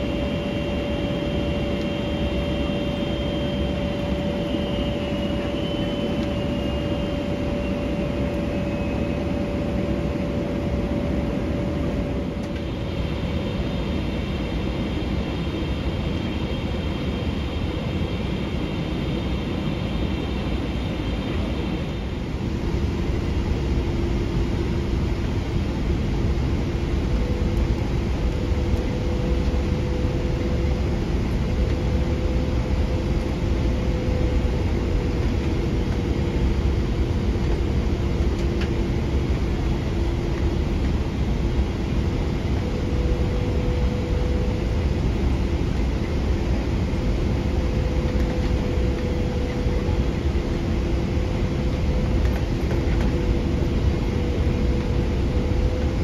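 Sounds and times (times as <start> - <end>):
airflow and engine roar: 0.0 - 56.0
low steady hum: 0.0 - 56.0.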